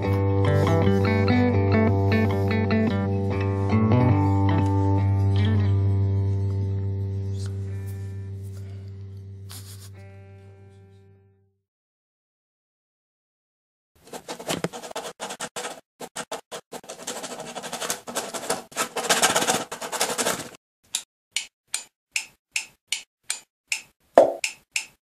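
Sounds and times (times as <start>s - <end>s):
pencil scribbling on paper: 9.5s - 10.0s, 14.1s - 20.4s.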